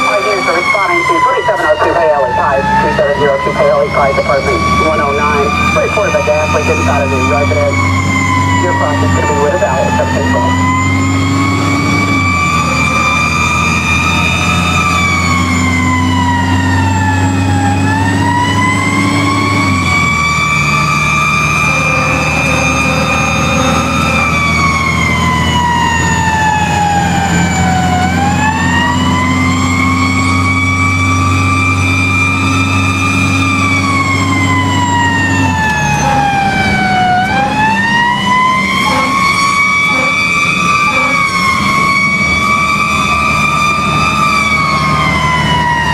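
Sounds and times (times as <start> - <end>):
fire truck siren wailing: 0.0 - 45.9
truck engine running: 0.0 - 45.9.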